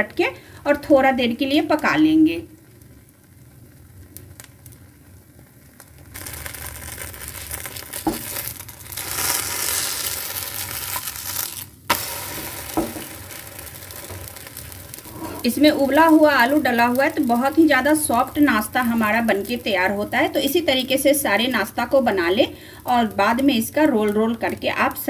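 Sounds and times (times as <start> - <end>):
pancake sizzling in pan: 1.8 - 25.0
spatula knocking pan: 12.7 - 13.2
spatula scraping pan: 14.9 - 15.7.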